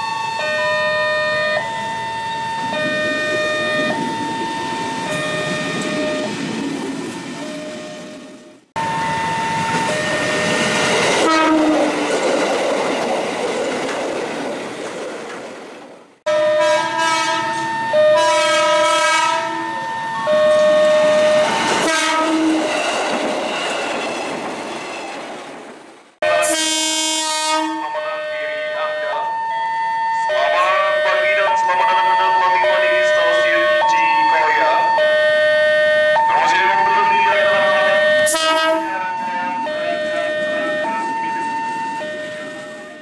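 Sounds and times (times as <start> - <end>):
passing train rumble and clatter: 0.7 - 27.7, 36.5 - 43.0
train horn blasts: 11.2 - 12.0, 16.3 - 19.8, 20.4 - 22.8, 26.2 - 29.1, 37.4 - 40.5.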